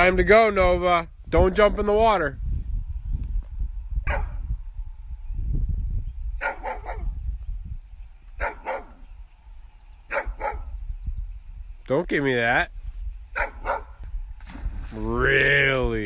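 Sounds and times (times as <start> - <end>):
dog barking: 4.1 - 4.4, 6.4 - 7.1, 8.4 - 9.0, 10.1 - 10.7, 13.4 - 14.0.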